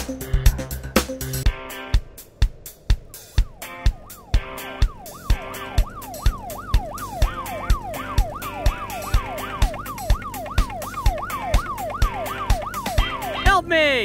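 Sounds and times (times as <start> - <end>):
music with kick-drum beat: 0.0 - 5.4
police siren wailing: 3.2 - 14.0.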